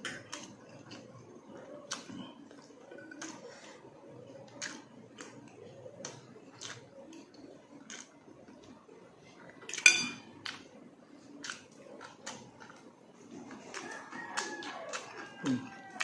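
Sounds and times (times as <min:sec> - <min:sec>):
fork clinking against dish: 0:09.7 - 0:10.3.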